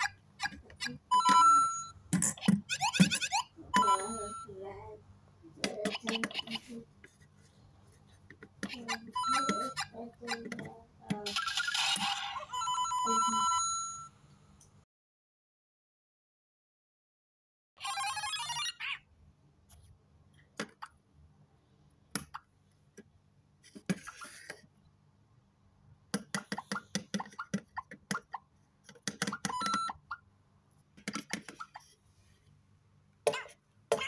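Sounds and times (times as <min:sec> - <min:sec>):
toy electronic jingles and blips: 0:00.8 - 0:04.5, 0:08.9 - 0:10.4, 0:11.3 - 0:14.1.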